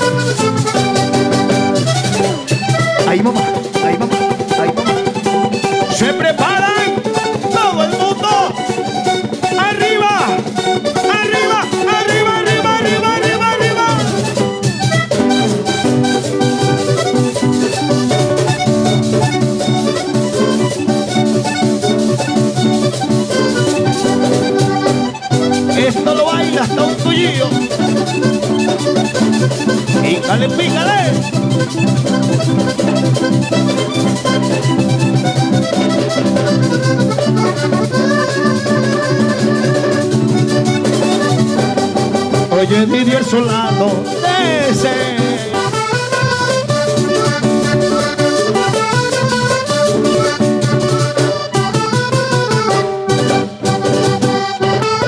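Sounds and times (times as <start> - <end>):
bass line: 0.0 - 54.9
button accordion riff: 0.0 - 55.0
steady percussion beat: 0.0 - 55.0.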